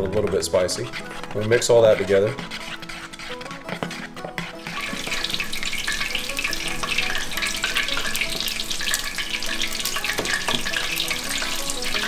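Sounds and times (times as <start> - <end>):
frying in hot oil with pops: 4.4 - 12.0.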